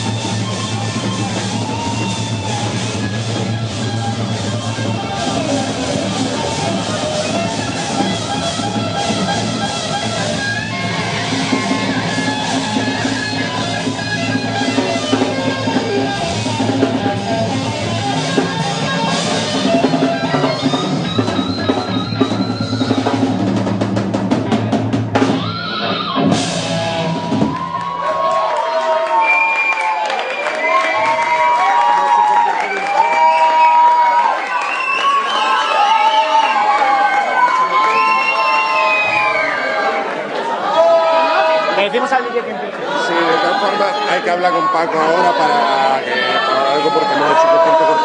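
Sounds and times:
rock band playing live: 0:00.0 - 0:29.3, 0:43.3 - 0:48.0.

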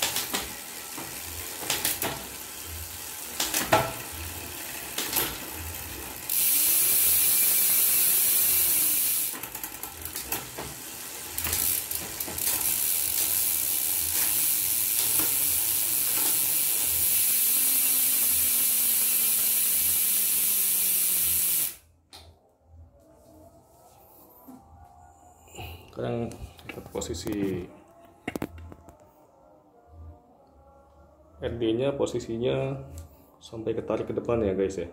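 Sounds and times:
ratchet-like ticking: 0:00.0 - 0:21.8
bicycle chain whirring: 0:00.0 - 0:21.9.

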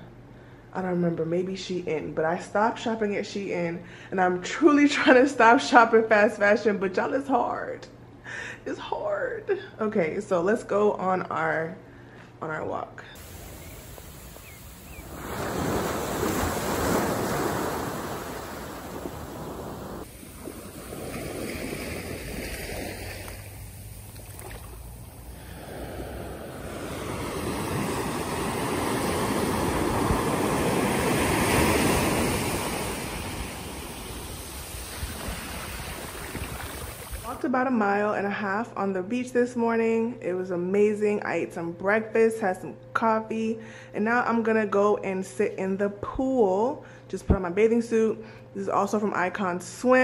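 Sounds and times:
wind on microphone: 0:13.2 - 0:24.4, 0:25.3 - 0:37.3
ocean surf on beach: 0:13.2 - 0:37.4.

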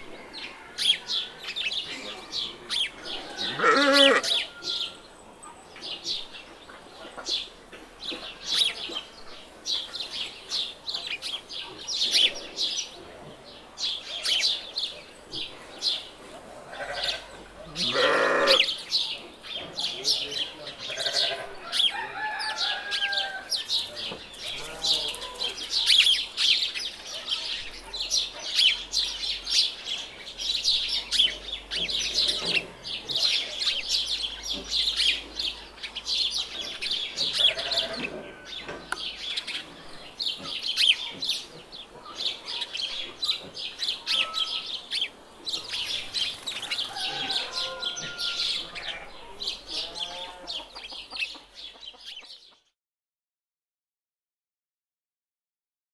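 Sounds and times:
small birds chirping: 0:00.0 - 0:52.7
chickens clucking: 0:30.7 - 0:52.7.

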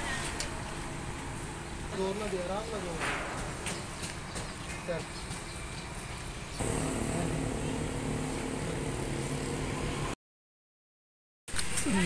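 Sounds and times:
street noise: 0:00.0 - 0:10.2
vehicle engine running: 0:06.6 - 0:10.2.

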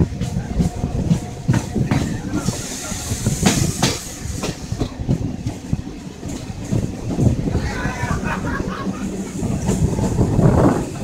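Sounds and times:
train rumble: 0:00.0 - 0:11.0
high hiss: 0:02.2 - 0:04.8.

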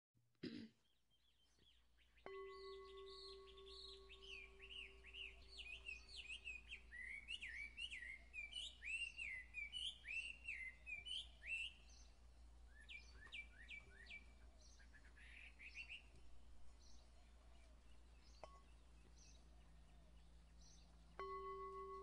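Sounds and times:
birds chirping: 0:00.8 - 0:22.0
chime ringing: 0:02.3 - 0:06.2, 0:21.2 - 0:22.0.

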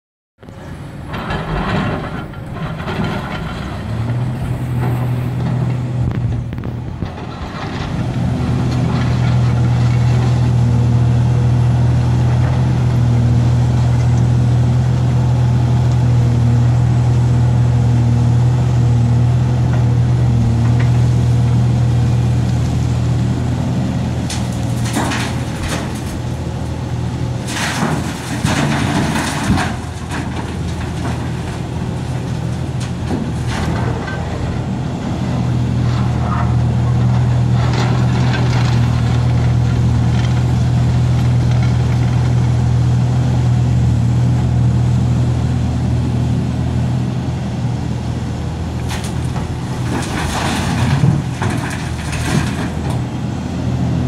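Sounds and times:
excavator diesel engine running: 0:00.4 - 0:54.0
rocks crashing into truck bed: 0:24.3 - 0:26.4, 0:27.4 - 0:34.7, 0:48.8 - 0:53.1.

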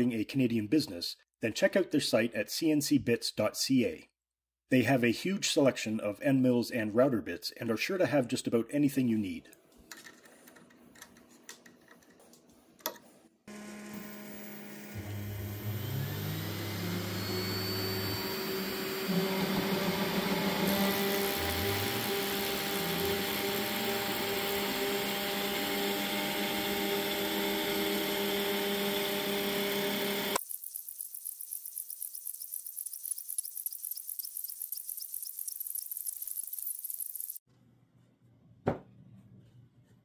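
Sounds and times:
router spindle running: 0:13.5 - 0:30.4
bit cutting acrylic: 0:14.0 - 0:37.4.

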